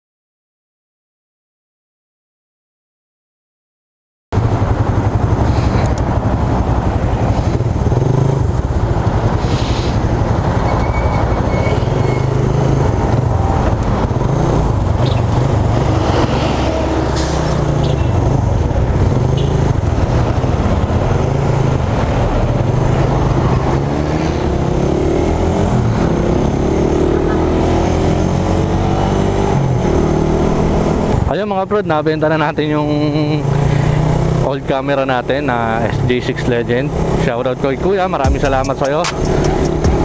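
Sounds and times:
motorcycle engine running: 0:04.4 - 0:09.4, 0:38.2 - 0:40.0
traffic rumble: 0:04.4 - 0:40.0.

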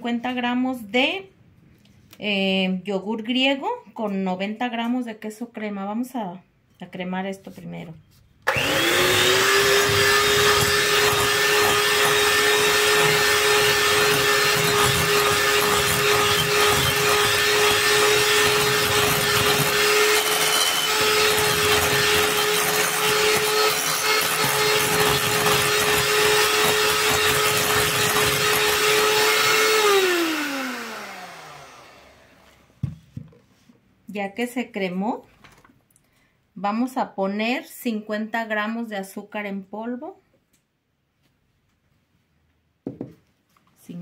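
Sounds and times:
electric hand mixer whining: 0:08.5 - 0:32.7.

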